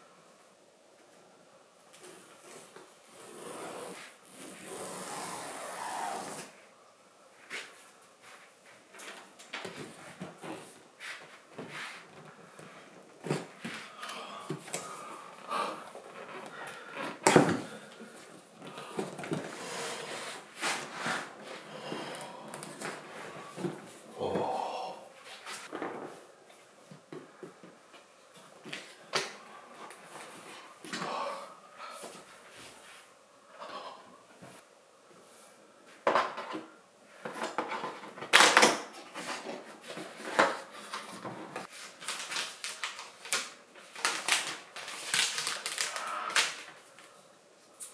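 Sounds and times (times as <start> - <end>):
cardboard packaging rustling: 38.2 - 47.0.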